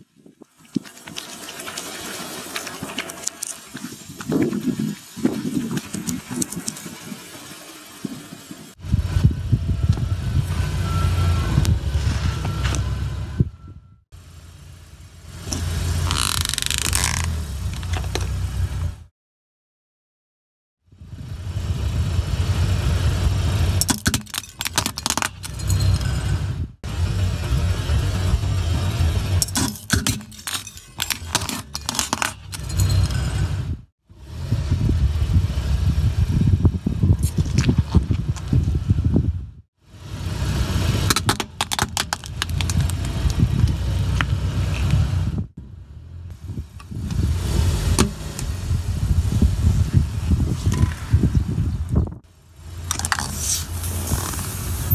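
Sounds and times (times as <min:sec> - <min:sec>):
car rumble: 0:05.8 - 0:19.1, 0:20.9 - 0:54.9
plastic toy cracking under tyre: 0:16.1 - 0:18.3, 0:23.8 - 0:25.5, 0:41.1 - 0:43.4
tyre rumbling over asphalt: 0:40.3 - 0:45.3
plastic cracking and snapping: 0:41.1 - 0:43.4.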